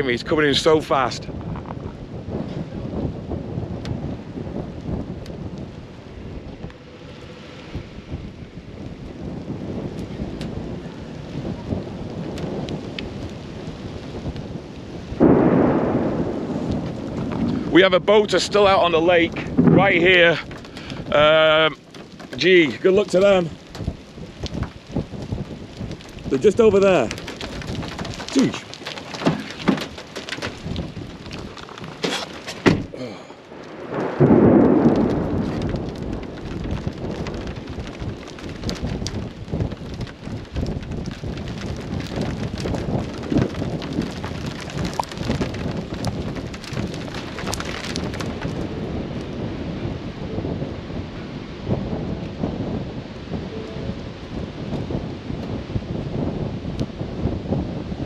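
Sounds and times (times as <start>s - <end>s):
thunder rumbling: 0.0s - 58.0s
raindrop ticks: 3.6s - 8.2s, 8.8s - 49.4s.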